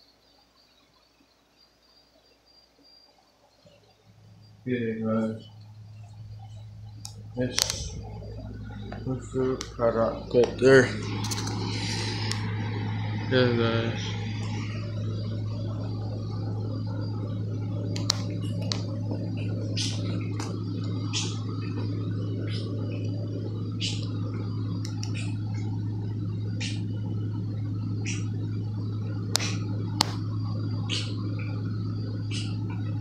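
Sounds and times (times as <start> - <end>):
steady low hum: 0.0 - 33.0
sharp clicks: 6.9 - 8.1, 17.9 - 18.9, 29.3 - 30.2.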